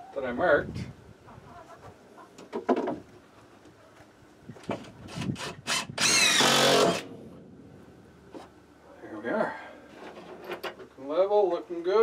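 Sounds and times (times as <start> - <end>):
cordless drill driving screw: 5.1 - 7.1.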